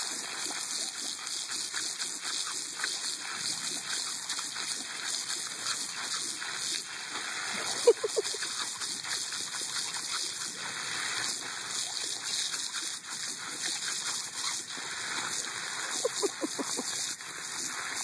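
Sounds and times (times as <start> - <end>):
water jetting from hose: 0.0 - 18.0.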